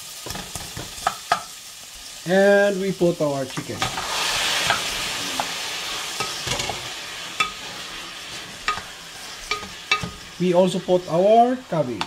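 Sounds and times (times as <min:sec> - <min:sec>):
chicken sizzling in oil: 0:00.0 - 0:12.0
spatula scraping a pan: 0:03.8 - 0:10.5.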